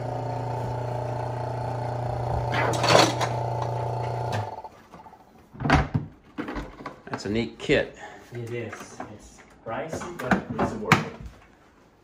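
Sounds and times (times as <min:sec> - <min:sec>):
vacuum pump humming: 0:00.0 - 0:04.7.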